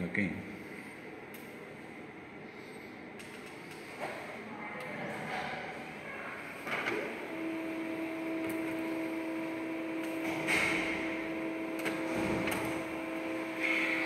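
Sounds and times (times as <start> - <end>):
printer motor hum: 6.4 - 14.0
paper feed whirring: 6.6 - 14.0
printer clicks: 10.0 - 12.9.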